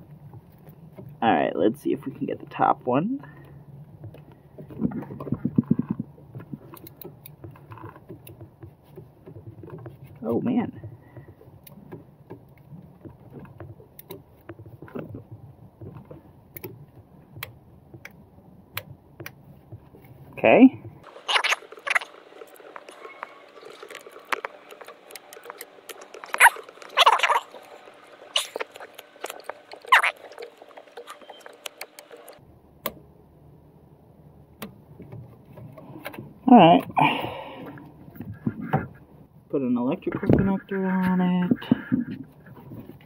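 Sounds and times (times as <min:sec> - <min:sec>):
hands rustling wiring: 0:03.9 - 0:32.4.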